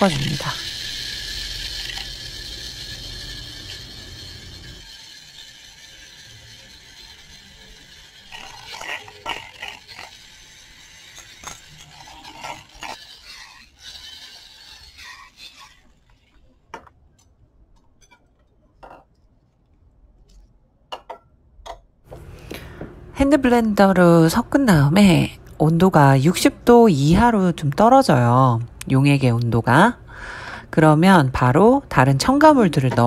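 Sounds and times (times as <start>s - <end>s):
electric blender whirring: 0.0s - 16.5s.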